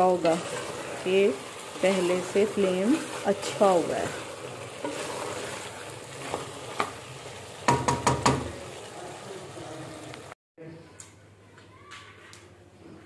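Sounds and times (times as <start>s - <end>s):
wooden spatula scraping a pot: 0.0s - 7.8s
meat and potatoes sizzling in pot: 0.0s - 10.4s.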